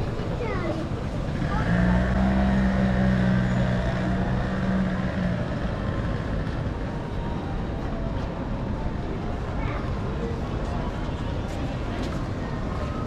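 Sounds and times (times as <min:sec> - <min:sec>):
vehicle engine humming: 0:00.0 - 0:08.1
street noise: 0:00.0 - 0:13.0.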